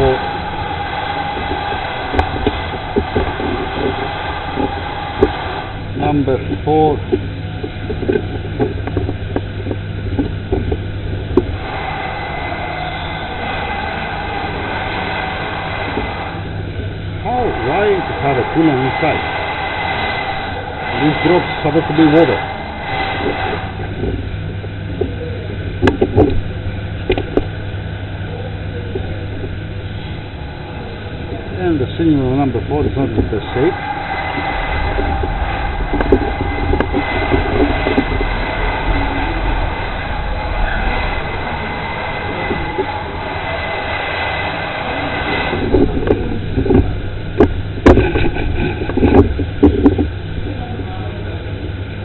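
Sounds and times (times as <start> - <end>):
low mechanical hum: 0.0 - 52.0
workshop background noise: 0.0 - 52.0
sharp clicks and knocks: 25.8 - 26.4.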